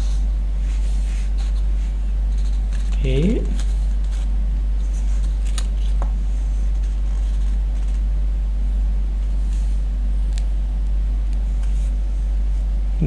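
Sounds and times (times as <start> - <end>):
low background hum: 0.0 - 13.0.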